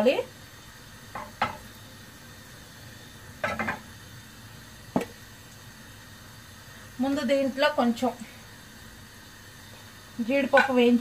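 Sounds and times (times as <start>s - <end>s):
low steady hiss: 0.0s - 11.0s
cookware clinking and knocking: 3.4s - 3.8s, 10.5s - 10.8s.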